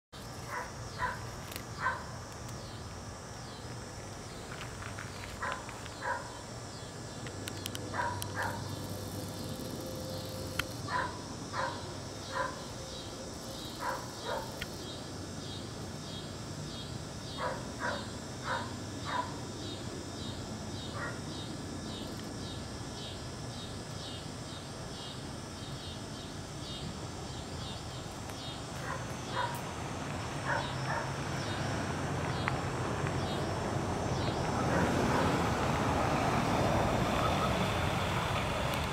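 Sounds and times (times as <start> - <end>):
high pulsing chirp: 0.2 - 29.6, 30.2 - 35.3
dog barking: 0.5 - 1.2, 1.8 - 2.1, 5.4 - 6.4, 7.9 - 8.6, 10.9 - 12.7, 13.8 - 14.6, 17.4 - 19.4, 21.0 - 21.2, 28.8 - 29.6, 30.4 - 31.2, 34.6 - 35.4.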